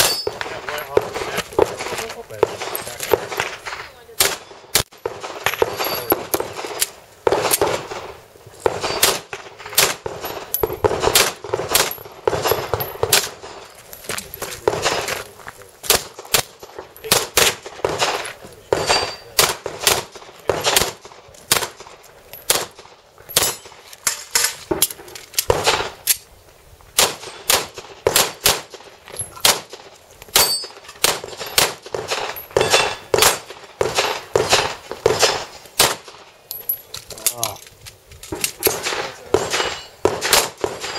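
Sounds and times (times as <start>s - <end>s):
handgun shots: 8.6s - 13.5s, 15.8s - 21.9s, 29.4s - 36.2s, 38.3s - 40.9s.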